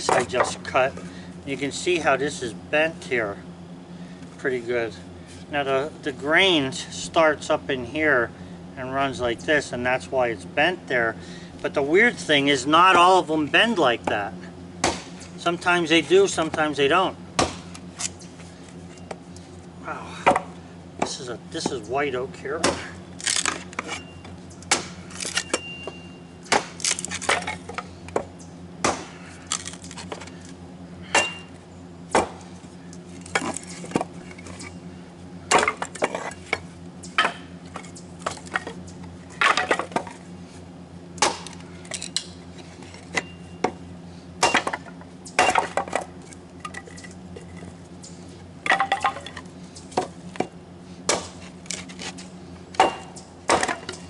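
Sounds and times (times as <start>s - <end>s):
steady low hum: 0.0s - 54.0s
wood splitting with axe: 14.8s - 15.2s, 17.4s - 17.7s, 22.6s - 24.0s, 24.7s - 25.7s, 26.5s - 30.3s, 32.1s - 32.4s, 35.5s - 36.6s, 41.2s - 41.6s, 44.4s - 46.1s, 51.1s - 52.2s, 52.8s - 54.0s.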